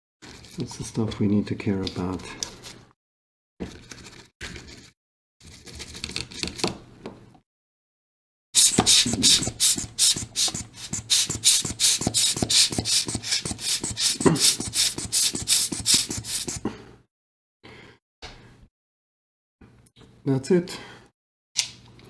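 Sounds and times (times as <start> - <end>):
brush scrubbing circuit board: 8.6 - 16.6.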